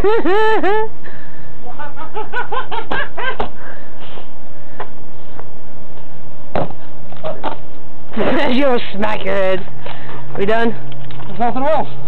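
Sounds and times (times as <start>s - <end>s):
person laughing: 0.0s - 1.0s, 1.6s - 3.6s
sharp knocks: 6.5s - 7.6s.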